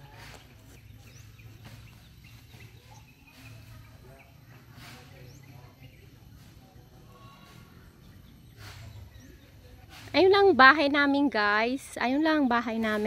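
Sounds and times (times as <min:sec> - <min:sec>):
bird chirps and calls: 0:00.2 - 0:06.5.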